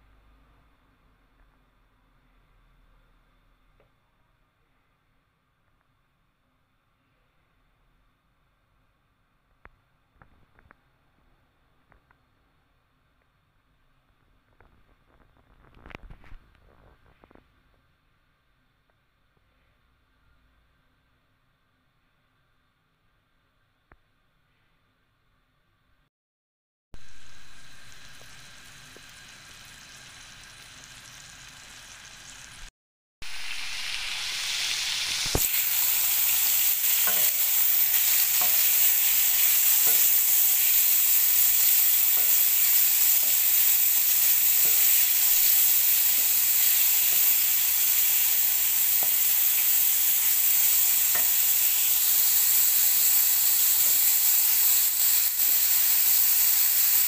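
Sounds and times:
vegetables sizzling in a pan: 0:27.0 - 0:57.0.

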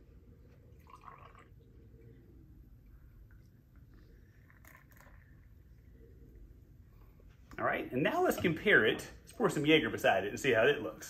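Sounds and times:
beer pouring into glass: 0:00.7 - 0:01.7, 0:04.2 - 0:05.7.

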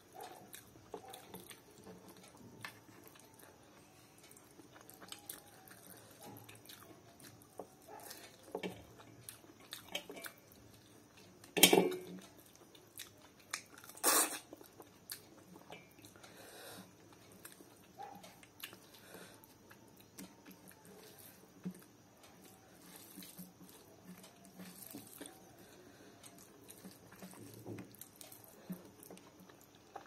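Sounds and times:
chewing and wet mouth sounds: 0:00.1 - 0:30.0.

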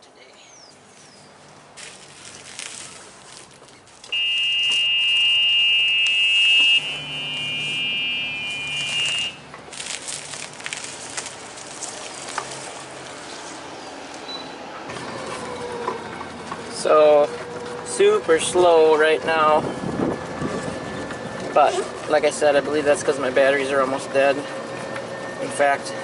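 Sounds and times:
reverse warning buzzer: 0:04.1 - 0:09.5
electric drive hum: 0:04.1 - 0:13.2.

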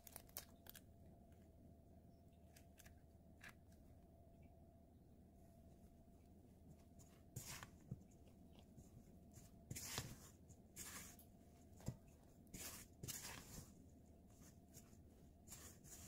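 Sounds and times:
spatula scraping dough in bowl: 0:09.4 - 0:11.2, 0:11.8 - 0:13.8.

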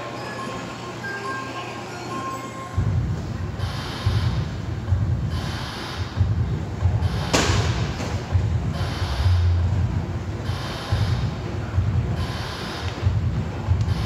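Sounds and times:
sharp thud: 0:07.3 - 0:08.2.

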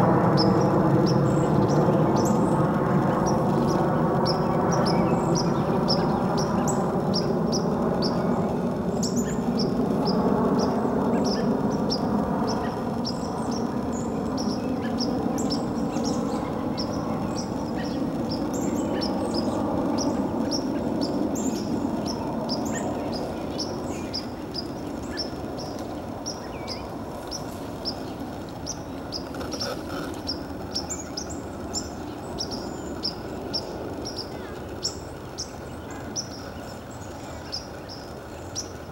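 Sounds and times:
small bird chirping: 0:00.4 - 0:38.9.

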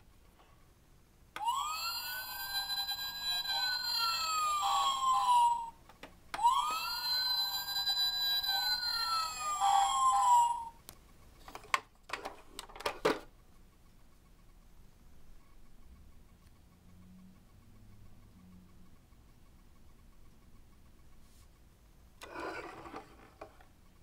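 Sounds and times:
toy electronic siren wailing: 0:01.4 - 0:05.8, 0:06.4 - 0:10.8.

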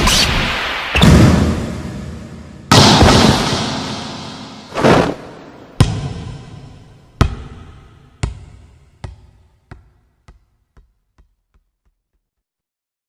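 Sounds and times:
ball bouncing on court floor: 0:05.8 - 0:06.4, 0:07.2 - 0:12.0.

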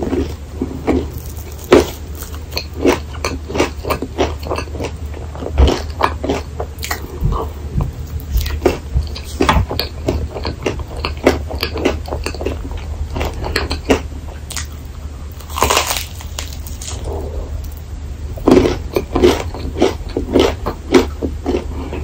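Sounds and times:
chewing: 0:00.0 - 0:17.8, 0:18.4 - 0:22.0
crunchy bite into waffle: 0:15.4 - 0:17.8.

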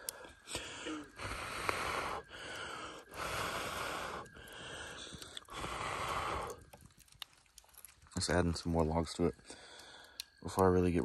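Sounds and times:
person blowing on embers: 0:00.0 - 0:07.9.

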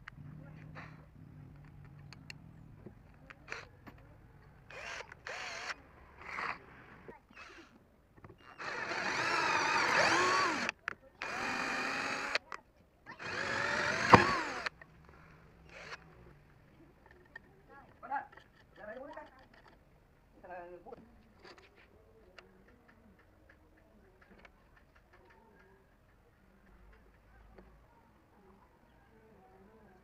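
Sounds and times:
cordless drill boring metal: 0:04.7 - 0:05.8, 0:07.3 - 0:07.8, 0:08.4 - 0:12.4, 0:13.1 - 0:14.7, 0:15.6 - 0:16.0.

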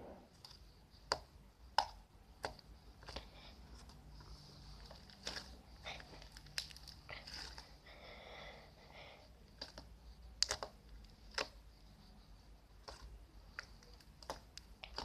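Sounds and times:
slime sticky clicks and crackles: 0:06.1 - 0:07.6, 0:09.5 - 0:11.6, 0:12.8 - 0:15.0.

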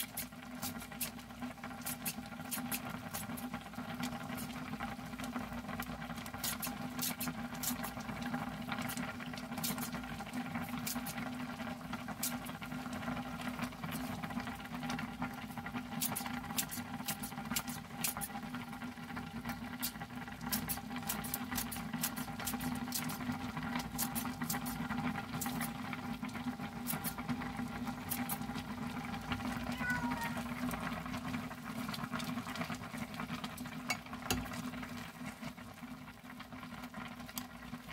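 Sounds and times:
scissors snipping green onion: 0:00.0 - 0:01.2, 0:01.8 - 0:03.5, 0:06.4 - 0:07.9, 0:09.6 - 0:10.0, 0:10.8 - 0:11.2, 0:15.9 - 0:18.4, 0:19.8 - 0:25.7, 0:26.8 - 0:27.2, 0:28.1 - 0:28.4
simmering pot bubbling: 0:00.0 - 0:37.9.

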